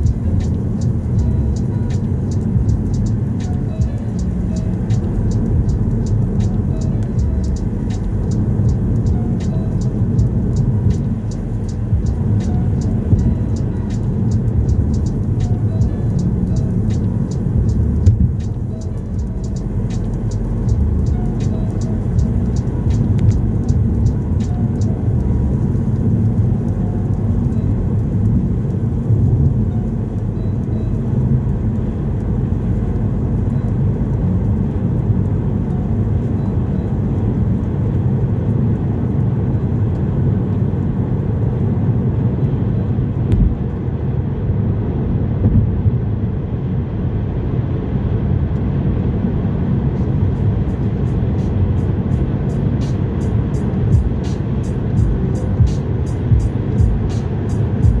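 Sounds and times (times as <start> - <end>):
turn indicator ticking: 0.0 - 41.7, 42.4 - 43.7, 50.0 - 58.0
car road and engine rumble: 0.0 - 58.0.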